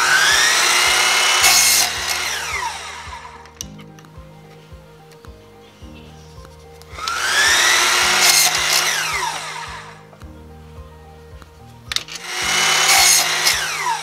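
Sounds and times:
saw cutting plastic pipe: 0:00.0 - 0:03.3, 0:07.0 - 0:09.6, 0:12.2 - 0:14.0
electric miter saw whining: 0:00.0 - 0:03.6, 0:07.0 - 0:10.0, 0:12.1 - 0:14.0.

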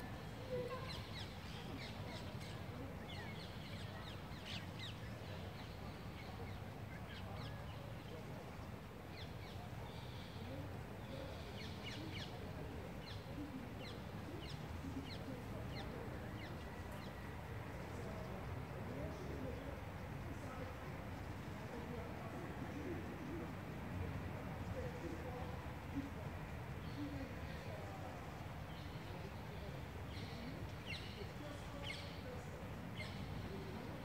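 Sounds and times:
low rumble of background noise: 0:00.0 - 0:34.0.

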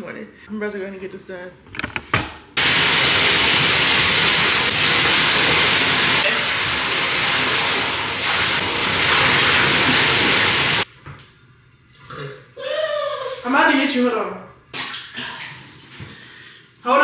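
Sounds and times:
water spraying hard: 0:02.6 - 0:10.9.

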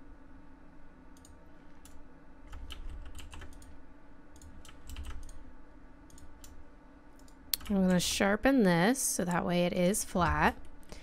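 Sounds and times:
faint low hum: 0:00.0 - 0:11.0
keyboard keys clicking: 0:01.2 - 0:03.7, 0:04.4 - 0:05.4.

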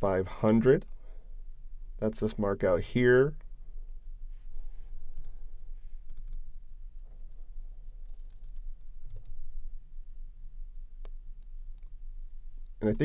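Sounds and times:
low steady hum: 0:00.0 - 0:13.0
keyboard and mouse clicks: 0:06.1 - 0:06.4, 0:08.0 - 0:09.4.

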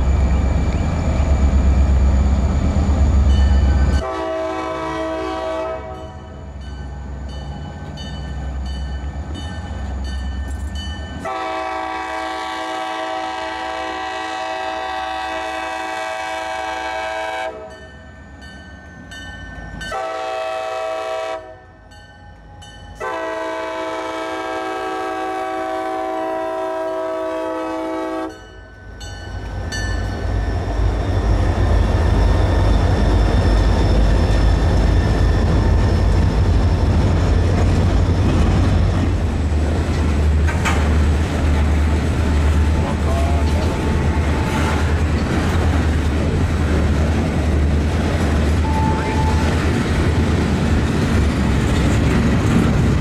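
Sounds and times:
locomotive engines rumbling: 0:00.0 - 0:53.0
locomotive air horn blasts: 0:04.0 - 0:06.2, 0:11.2 - 0:17.8, 0:19.9 - 0:21.7, 0:23.0 - 0:28.4.

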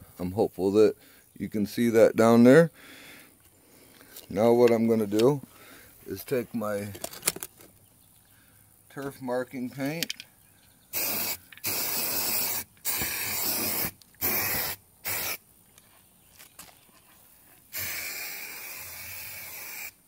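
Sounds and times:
aerosol paint spraying: 0:10.9 - 0:15.4, 0:17.7 - 0:20.0.

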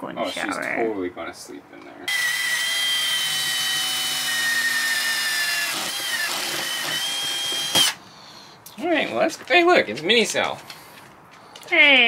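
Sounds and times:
cordless drill boring into wood: 0:02.1 - 0:08.0.

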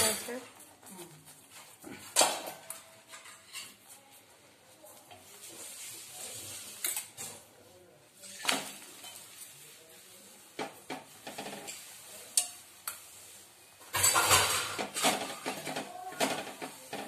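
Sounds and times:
clatter and sizzle: 0:00.0 - 0:04.2, 0:04.9 - 0:17.0
metal spoon scraping on griddle: 0:03.1 - 0:03.9, 0:11.1 - 0:12.6.

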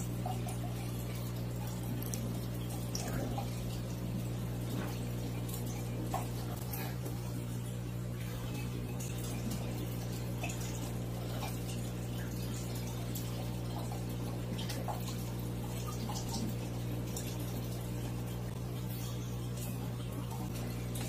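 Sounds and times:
pump humming: 0:00.0 - 0:21.0
water bubbling and trickling: 0:00.0 - 0:21.0.

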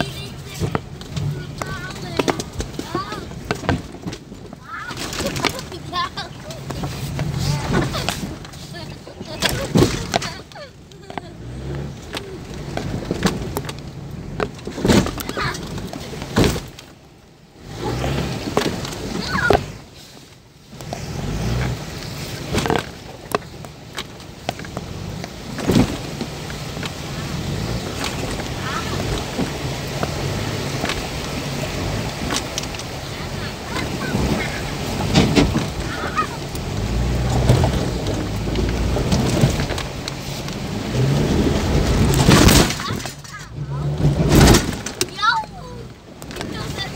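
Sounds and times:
vehicle body knocks and clunks: 0:00.0 - 0:17.0, 0:22.4 - 0:31.3, 0:34.1 - 0:45.2
low engine rumble: 0:00.0 - 0:46.9
stones crunching under tyres: 0:00.0 - 0:46.9.

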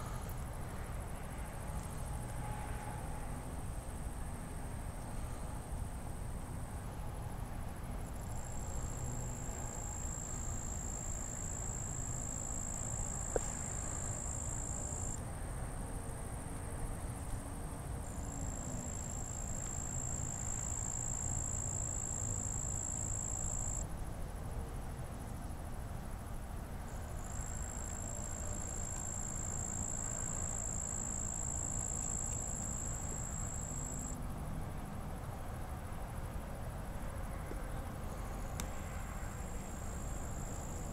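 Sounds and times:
insect high-pitched trill: 0:18.4 - 0:23.8, 0:27.2 - 0:34.2.

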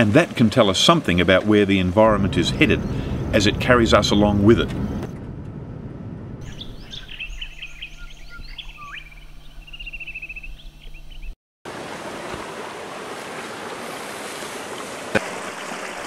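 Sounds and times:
birds chirping: 0:01.9 - 0:05.1, 0:06.4 - 0:11.4
low rumble: 0:02.0 - 0:09.4
stream water over rocks: 0:11.7 - 0:16.0.

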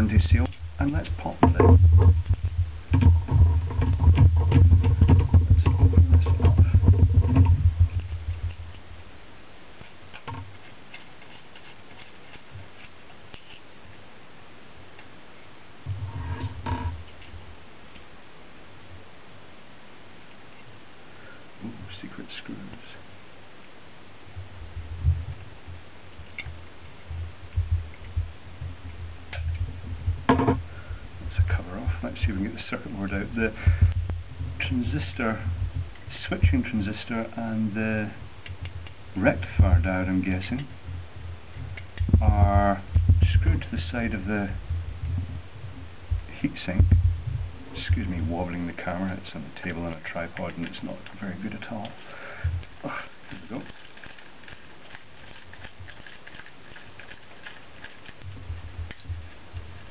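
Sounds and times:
low handling rumble: 0:00.0 - 0:09.7, 0:24.2 - 0:53.7.

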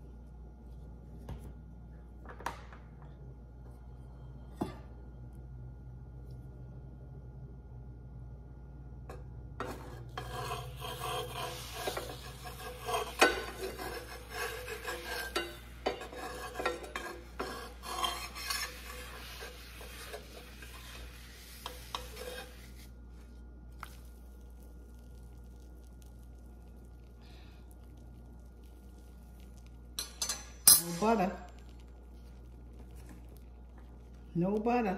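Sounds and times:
low steady hum: 0:00.0 - 0:34.9
spatula scraping frying pan: 0:09.6 - 0:22.9.

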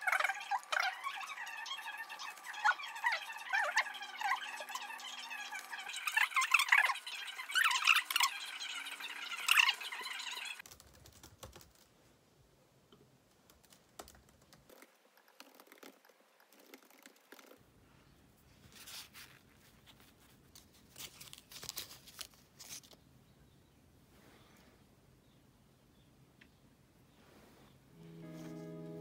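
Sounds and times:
laptop keyboard typing: 0:10.6 - 0:11.9, 0:13.3 - 0:17.6.

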